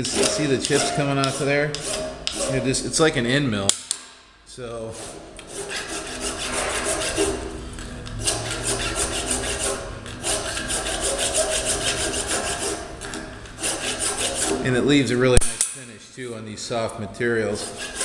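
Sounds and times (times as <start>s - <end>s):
file rasping on metal: 0.0s - 2.8s, 4.9s - 14.8s, 17.5s - 18.0s.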